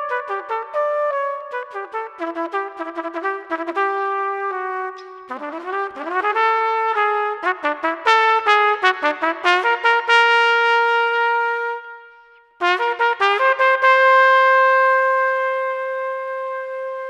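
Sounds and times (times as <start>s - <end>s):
trumpet playing a fanfare: 12.6s - 17.0s.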